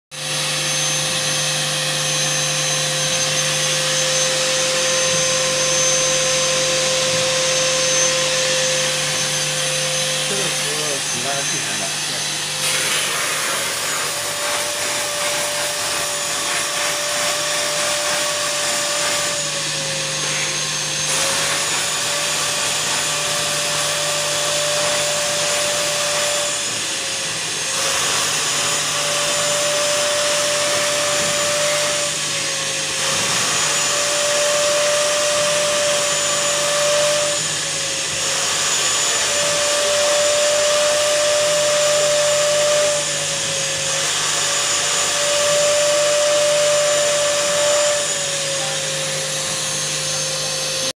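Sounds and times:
vacuum motor whining: 0:00.1 - 0:50.9.

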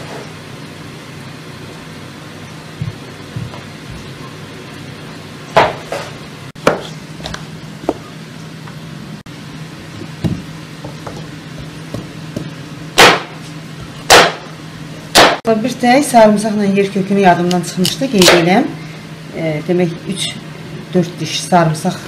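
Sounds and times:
steady low hum: 0:00.0 - 0:22.0
knife chopping on wooden board: 0:05.6 - 0:08.0, 0:10.2 - 0:13.4, 0:14.1 - 0:14.4, 0:15.2 - 0:15.4.

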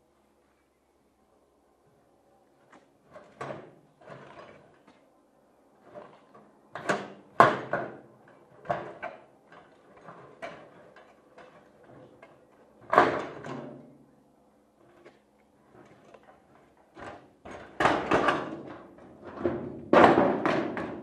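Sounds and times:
metal knocks and clanks: 0:15.8 - 0:21.0.

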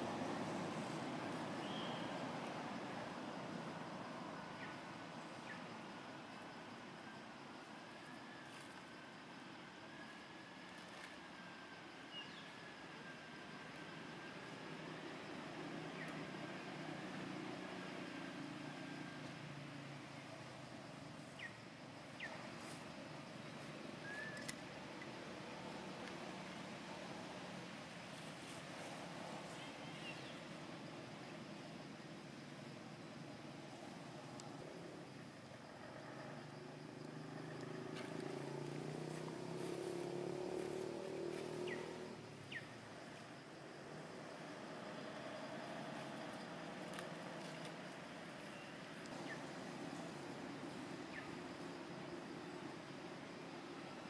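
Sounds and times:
faint steady hiss: 0:00.0 - 0:54.0
vehicle engine passing: 0:36.8 - 0:42.3.

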